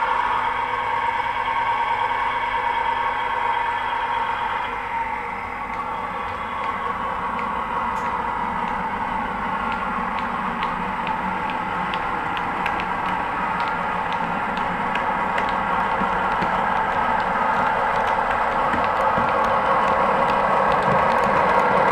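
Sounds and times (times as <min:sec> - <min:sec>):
model train mechanical hum: 0:00.0 - 0:21.9
wheels clicking over rail joints: 0:05.8 - 0:21.9.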